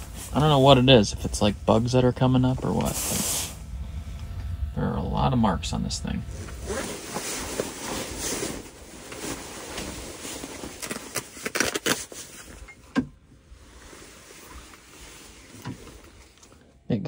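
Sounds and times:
jacket rustling: 6.3 - 12.6.

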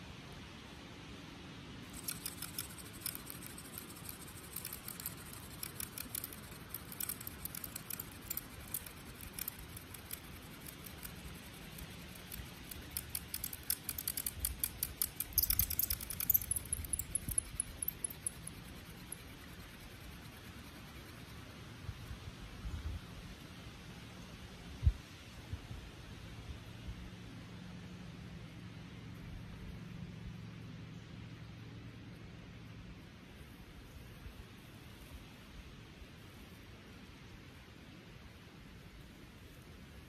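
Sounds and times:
hand drill grinding in socket: 1.9 - 18.3.

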